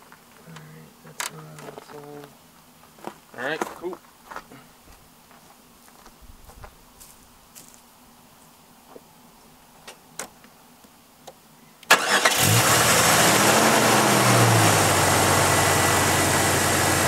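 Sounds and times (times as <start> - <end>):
car engine starting and idling: 11.9 - 17.0.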